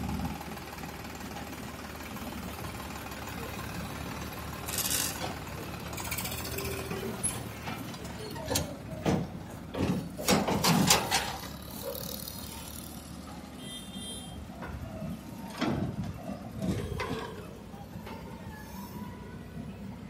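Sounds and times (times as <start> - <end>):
diesel engine under load: 0.0 - 20.0
clanks of digger arm and bucket: 4.7 - 12.4, 14.5 - 18.4.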